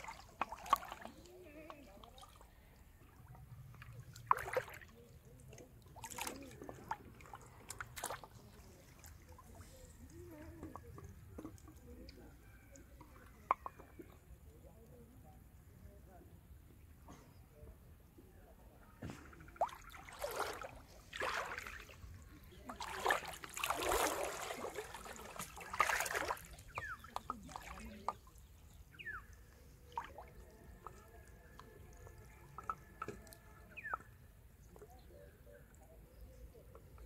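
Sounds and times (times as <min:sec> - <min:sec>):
water splashing and sloshing: 0:00.0 - 0:14.6, 0:18.8 - 0:35.8
water dripping: 0:19.6 - 0:34.8.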